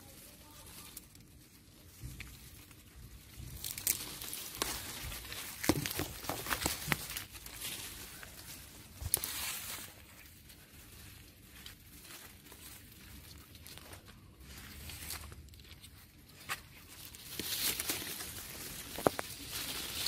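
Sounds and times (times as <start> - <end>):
leaves and twigs rustling: 0.0 - 20.0
branches snapping: 0.8 - 10.2, 14.7 - 20.0.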